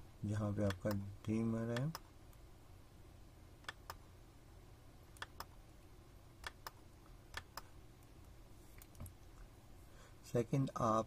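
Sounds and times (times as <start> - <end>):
faint low hum: 0.0 - 11.0
computer mouse clicking: 3.6 - 4.0, 5.1 - 5.5.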